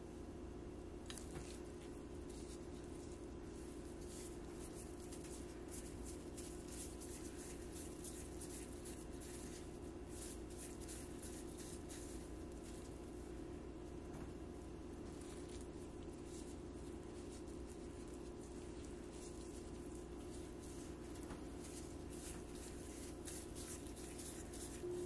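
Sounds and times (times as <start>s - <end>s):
steady low hum: 0.0s - 25.0s
gloved hands squishing mixture: 1.0s - 25.0s.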